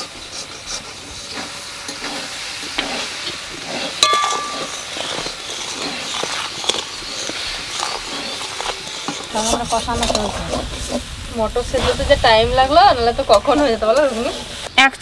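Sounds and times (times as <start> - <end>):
metal spatula scraping pan: 0.0 - 11.1
sauce boiling and hissing: 0.0 - 14.8
spatula clinking against pan: 4.0 - 5.2.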